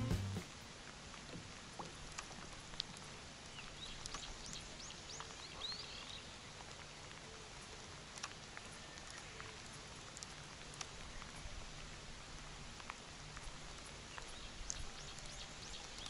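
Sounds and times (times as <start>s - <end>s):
light rain on pond: 0.0s - 16.0s.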